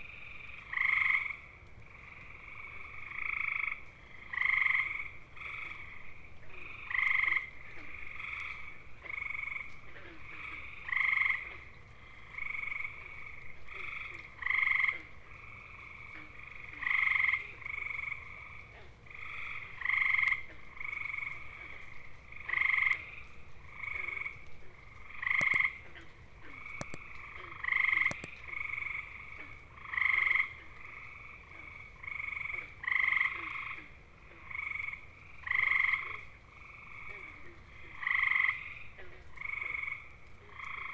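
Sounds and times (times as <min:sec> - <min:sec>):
faint frog trills: 0:00.0 - 0:40.9
loud frog trilling: 0:25.0 - 0:37.4.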